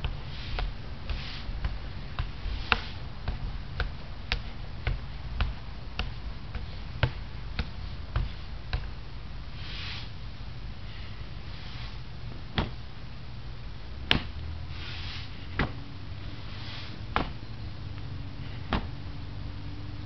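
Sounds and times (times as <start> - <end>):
soft swishes: 0.0 - 8.9, 9.5 - 10.2, 14.7 - 19.3
low rumble: 0.0 - 20.0.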